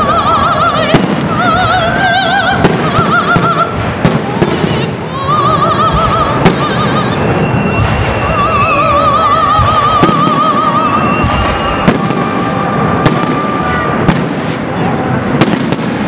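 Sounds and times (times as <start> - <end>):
operatic singing voice: 0.0 - 3.8, 4.6 - 7.4, 8.2 - 13.9
fireworks bangs: 0.0 - 16.0
music: 4.4 - 13.9.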